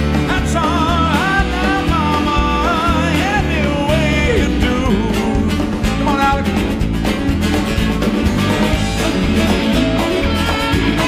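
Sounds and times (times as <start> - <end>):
drums: 0.0 - 11.0
strummed guitar: 0.0 - 11.0
walking bass: 0.0 - 11.0
person singing wordless vocal: 0.2 - 6.8.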